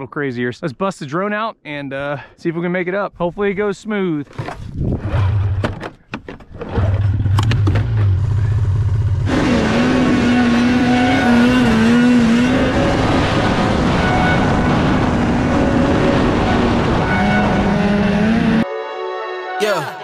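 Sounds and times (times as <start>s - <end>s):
snowmobile engine revving: 8.2s - 18.6s.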